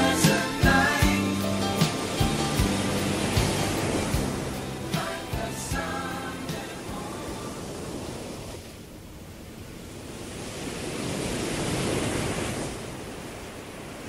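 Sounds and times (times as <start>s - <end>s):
rushing noise: 0.0s - 8.4s.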